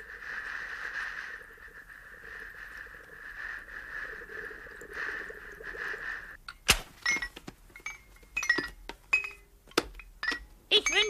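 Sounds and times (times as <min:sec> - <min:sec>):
steady hissing: 0:00.0 - 0:06.4.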